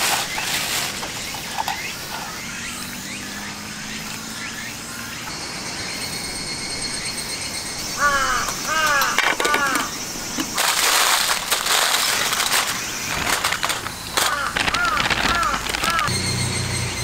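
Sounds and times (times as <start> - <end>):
crows cawing: 7.8 - 11.2, 14.1 - 16.1.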